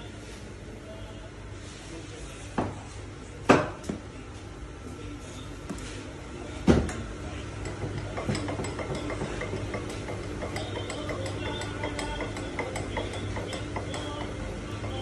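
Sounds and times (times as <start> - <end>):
steady machine noise: 7.4 - 15.0.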